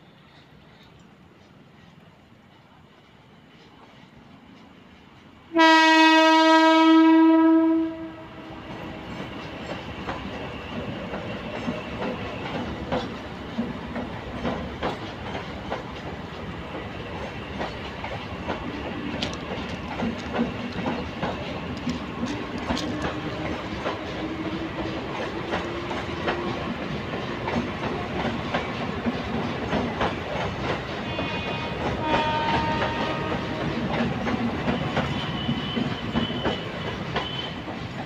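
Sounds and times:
train rumbling past: 0.0s - 38.0s
train horn blast: 5.5s - 8.6s, 31.0s - 33.9s, 34.8s - 37.7s
wheels clacking over rail joints: 8.6s - 38.0s.

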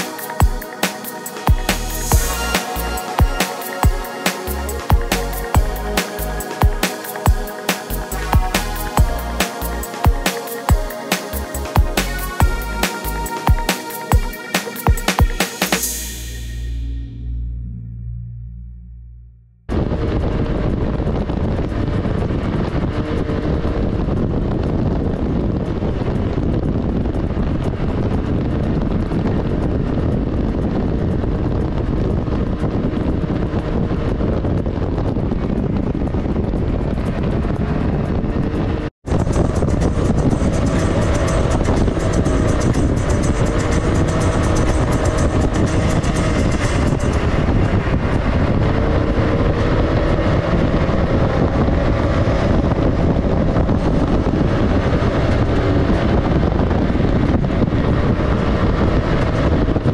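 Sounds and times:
vehicle engine running: 0.0s - 59.9s
wind on microphone: 19.7s - 59.9s.

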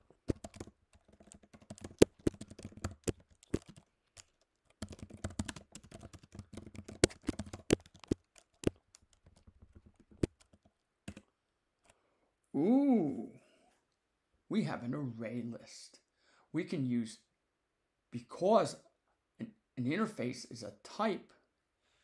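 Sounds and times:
computer keyboard typing: 0.2s - 11.3s.

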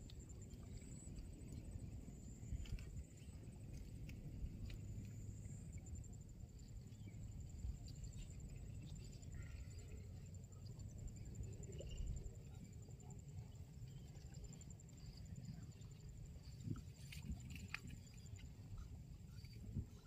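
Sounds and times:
insects pulsing trill: 0.1s - 20.0s.

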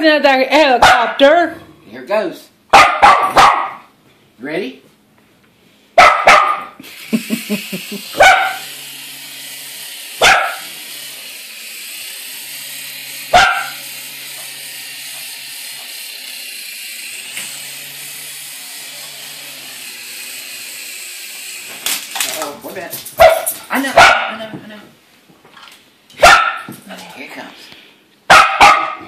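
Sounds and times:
small dog barking: 0.8s - 1.2s, 2.7s - 3.9s, 6.0s - 6.8s, 8.2s - 8.6s, 10.2s - 10.7s, 13.3s - 13.8s, 23.2s - 24.4s, 26.2s - 26.7s, 28.3s - 29.0s
toy helicopter rotor whirring: 6.8s - 23.6s.

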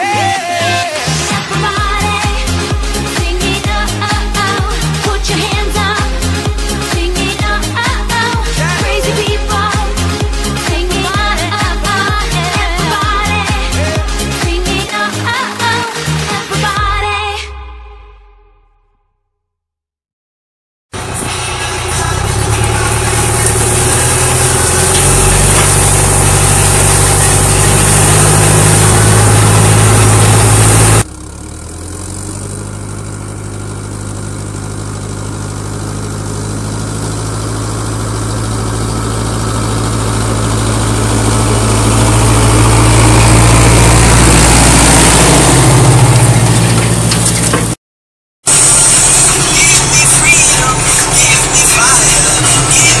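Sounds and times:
tractor diesel engine running: 0.0s - 16.8s, 21.0s - 47.8s, 48.5s - 53.0s.

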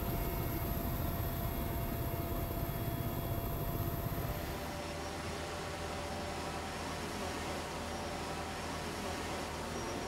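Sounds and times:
aircraft engine drone: 0.0s - 8.7s
faint whining tones: 0.0s - 10.0s.

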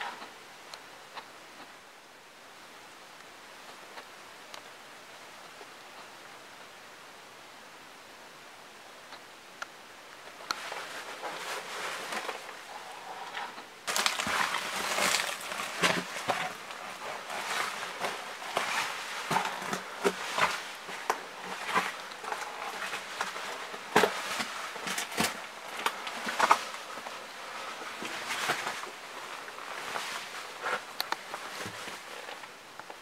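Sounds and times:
steady hiss: 0.0s - 33.0s
footsteps shuffling over debris: 10.4s - 33.0s.

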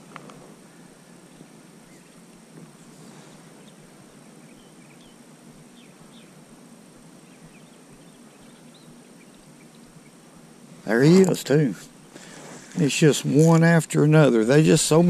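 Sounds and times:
low background hiss: 0.0s - 15.0s
faint bird chirps: 1.8s - 6.4s, 7.1s - 10.3s.

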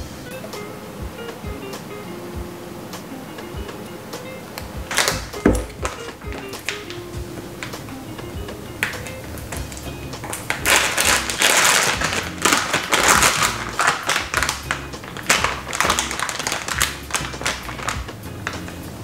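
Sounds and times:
light background music: 0.0s - 19.0s
plastic wrapping crinkling: 4.8s - 7.9s, 8.8s - 18.8s.

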